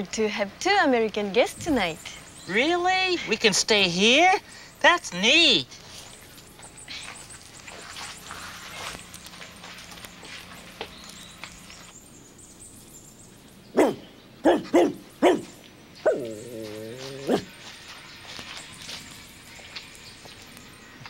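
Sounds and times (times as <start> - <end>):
dog barking: 13.7 - 16.3, 17.2 - 17.5.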